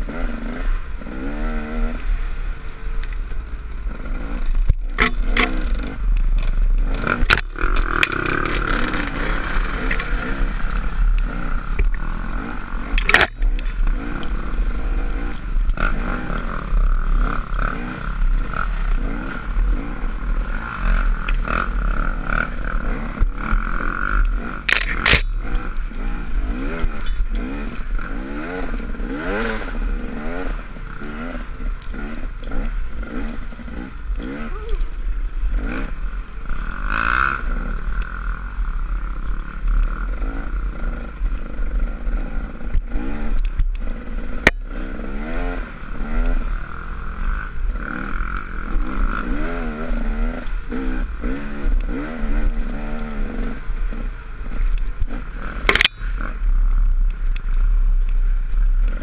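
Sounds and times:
dirt bike engine revving: 0:00.0 - 0:59.0
bike rattling and knocking: 0:03.2 - 0:19.4.

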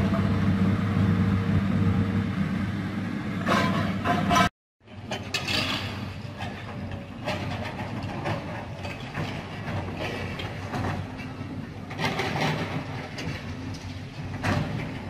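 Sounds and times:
excavator engine hum: 0:00.0 - 0:15.0
clanks and knocks: 0:03.4 - 0:15.0.

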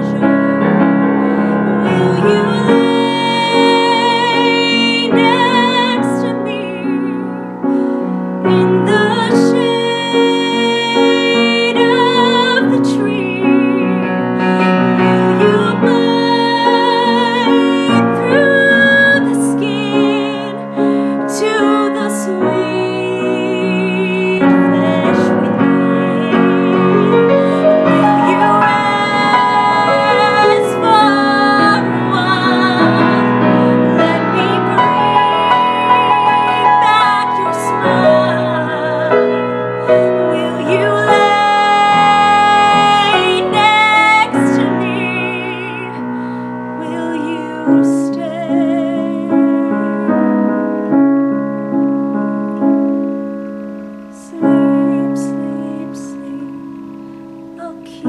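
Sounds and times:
woman singing with vibrato: 0:00.0 - 0:50.9, 0:54.1 - 0:58.0
piano accompaniment: 0:00.0 - 0:58.0.

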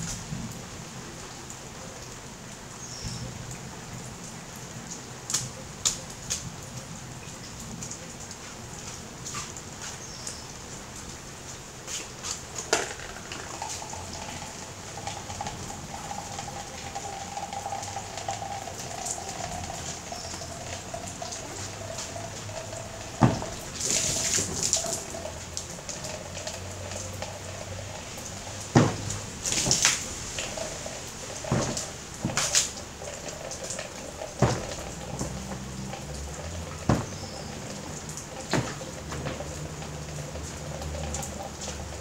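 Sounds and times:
rainwater pouring off awning: 0:00.0 - 0:42.0
water dripping: 0:00.0 - 0:42.0
water gushing and splashing: 0:03.1 - 0:42.0
sharp knocks: 0:23.2 - 0:24.9, 0:28.7 - 0:30.0.

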